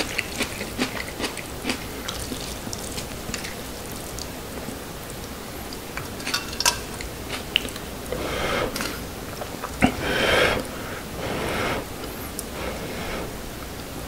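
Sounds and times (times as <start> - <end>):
person blowing on food: 9.8 - 13.4.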